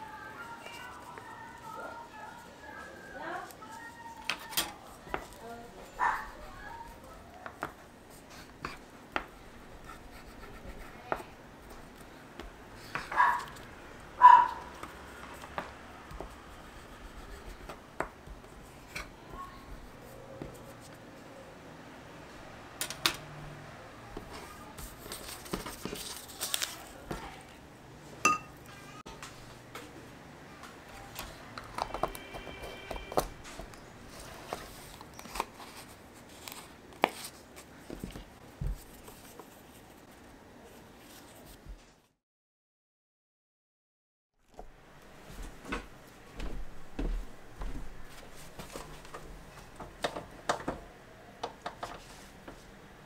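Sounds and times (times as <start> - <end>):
paper rustling: 24.3 - 27.6, 33.1 - 42.1.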